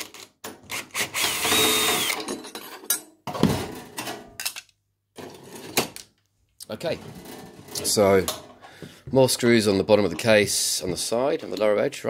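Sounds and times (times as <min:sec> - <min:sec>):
cordless drill whirring: 0:00.7 - 0:02.2.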